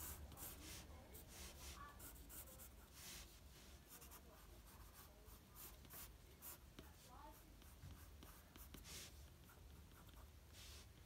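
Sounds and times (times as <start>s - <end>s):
pencil scratching on paper: 0.0s - 10.9s.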